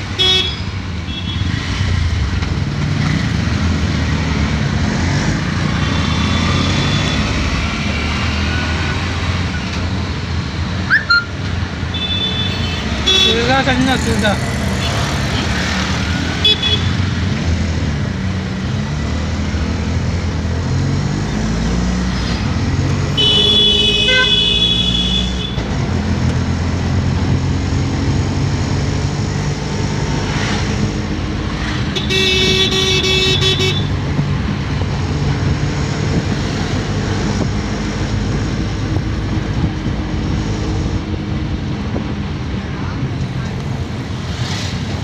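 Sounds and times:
vehicle horns honking: 0.1s - 1.6s, 10.9s - 13.6s, 16.4s - 17.0s, 23.1s - 25.6s, 31.9s - 34.0s.

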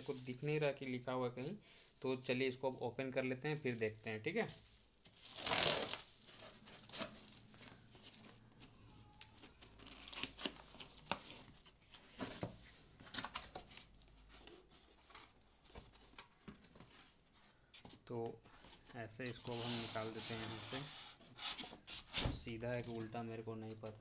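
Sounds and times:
bubble wrap tearing: 3.4s - 7.9s, 8.8s - 11.5s
rustling and scraping cardboard: 3.6s - 23.2s
knife cutting packing tape: 5.2s - 6.1s, 9.8s - 10.7s.

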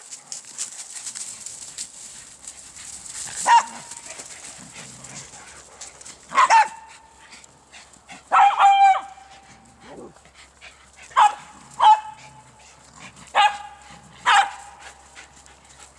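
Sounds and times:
soft rustling: 0.0s - 6.4s
dogs barking: 3.2s - 4.6s, 5.2s - 7.2s, 8.2s - 9.8s, 11.0s - 15.4s.

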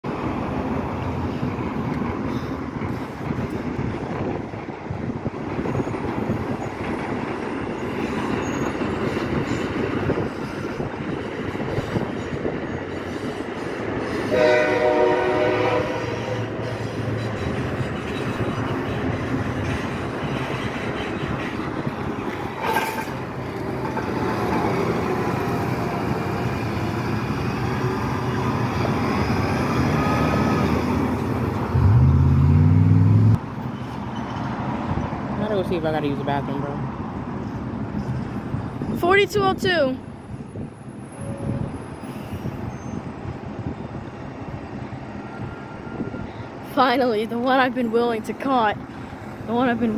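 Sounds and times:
wind rumble: 0.0s - 14.1s
traffic rumble: 0.0s - 49.9s
chord-like horn blast: 14.3s - 16.4s.

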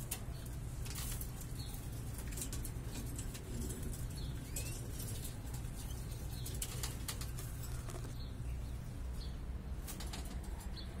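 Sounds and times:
canaries chirping: 0.0s - 10.0s
birds fluttering in cages: 0.0s - 11.0s.

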